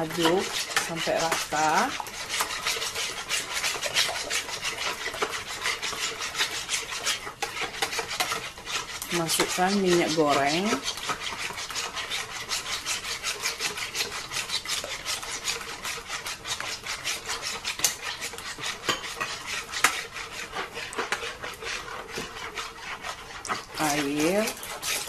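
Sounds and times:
whisk clinking against pot: 0:00.0 - 0:25.0
wire whisk scraping metal pot: 0:00.0 - 0:25.0.

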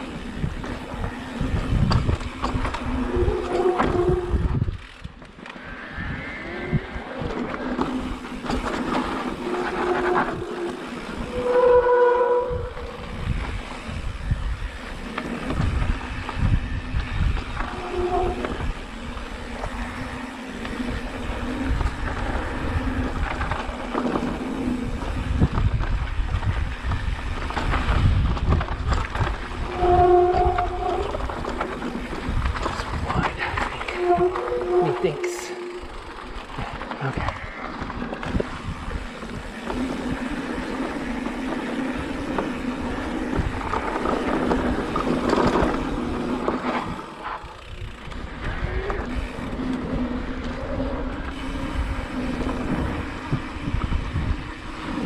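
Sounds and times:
wind on microphone: 0:00.0 - 0:05.2, 0:05.9 - 0:07.5, 0:09.4 - 0:40.9, 0:41.9 - 0:47.1, 0:47.8 - 0:55.0
bike rattling over dirt trail: 0:00.0 - 0:55.0
short humming tones: 0:33.8 - 0:36.6.

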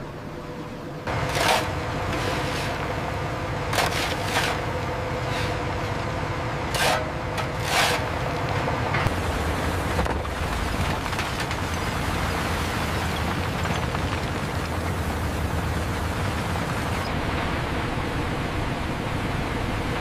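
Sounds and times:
heavy machinery rumble: 0:00.0 - 0:20.0
shovels scraping into loose ore: 0:01.1 - 0:03.0, 0:03.7 - 0:05.8, 0:06.7 - 0:08.6.

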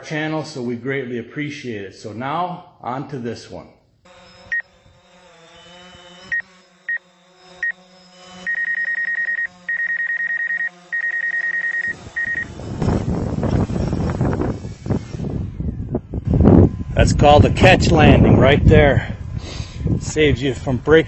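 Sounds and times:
drone motor hum: 0:04.0 - 0:21.0
high electronic beeps: 0:08.4 - 0:12.5
propeller wash and wind rush: 0:11.9 - 0:21.0.

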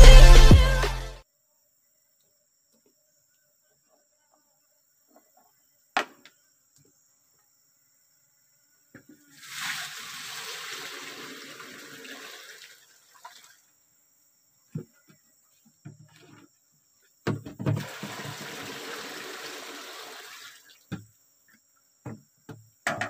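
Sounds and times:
liquid pouring into a pan: 0:09.4 - 0:13.6.

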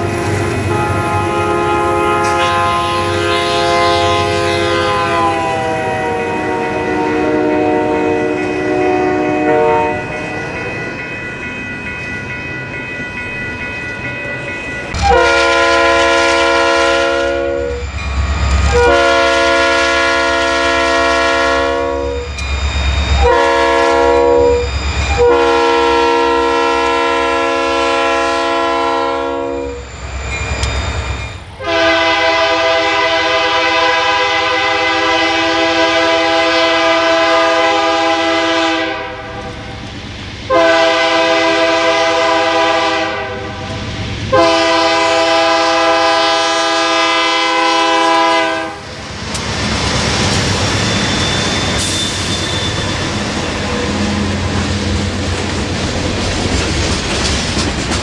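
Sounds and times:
locomotive air horn blasts: 0:00.0 - 0:10.1, 0:15.0 - 0:17.9, 0:18.7 - 0:22.4, 0:23.2 - 0:29.9, 0:31.6 - 0:39.6, 0:40.5 - 0:48.9.

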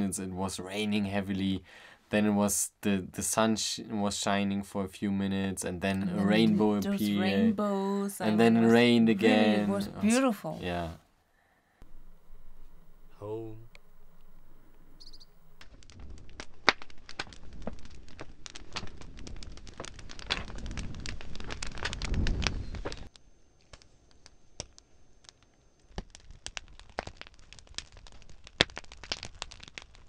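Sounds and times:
campfire crackling and popping: 0:11.8 - 0:30.0.

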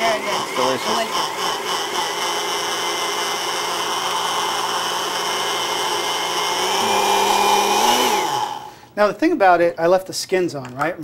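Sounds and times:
blender motor running: 0:00.0 - 0:08.9.

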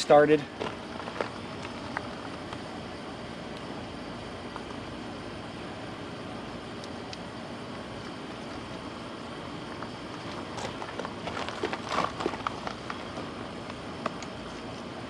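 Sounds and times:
steady background hiss: 0:00.0 - 0:15.0
plastic film crackling: 0:10.3 - 0:13.2.

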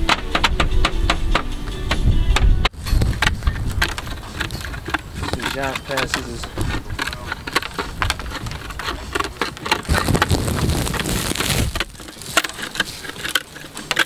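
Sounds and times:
wind buffeting the microphone: 0:00.0 - 0:13.0.

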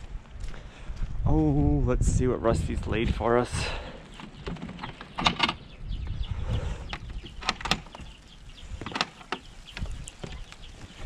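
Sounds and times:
metal latch clicks: 0:04.4 - 0:05.6, 0:06.9 - 0:08.0.

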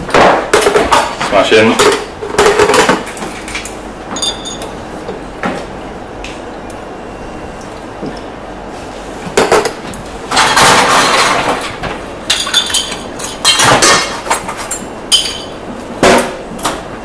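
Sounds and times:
glass bottle clinking: 0:04.1 - 0:04.7, 0:12.3 - 0:13.5, 0:15.1 - 0:15.6.

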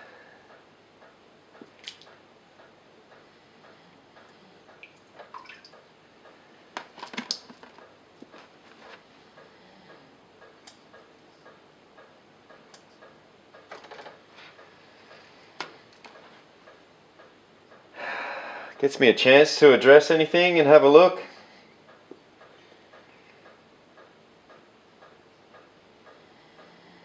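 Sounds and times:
water drips and splashes: 0:01.6 - 0:02.1, 0:04.8 - 0:05.8.

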